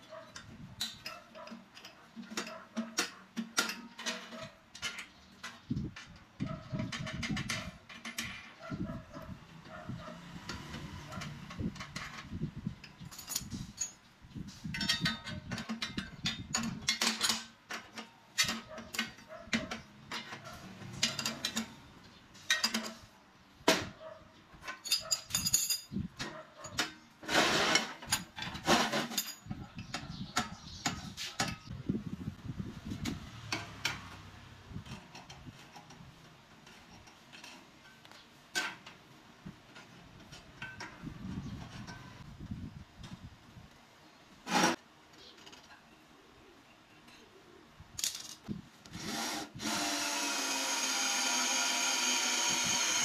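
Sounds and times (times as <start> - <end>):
spanners clinking on metal: 11.1 - 14.0, 14.7 - 21.8, 22.4 - 23.1, 24.6 - 27.0, 27.6 - 31.7.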